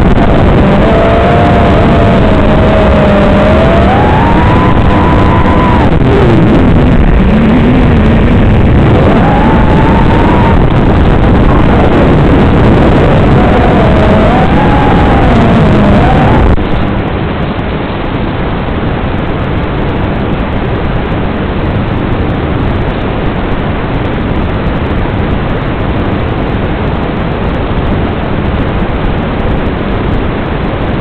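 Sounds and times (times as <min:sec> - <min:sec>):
drone motor: 0:00.0 - 0:16.6
video receiver static hiss: 0:00.0 - 0:16.9.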